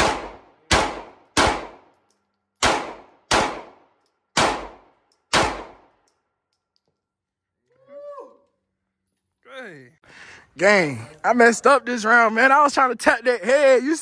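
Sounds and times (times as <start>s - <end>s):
gunshots: 0.0s - 1.9s, 2.6s - 6.0s.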